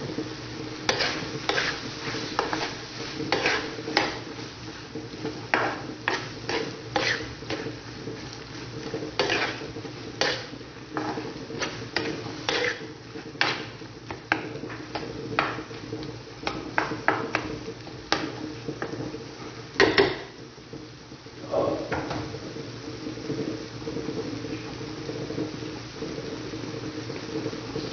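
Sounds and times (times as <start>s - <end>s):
metal spoon scraping frying pan: 0.8s - 15.7s.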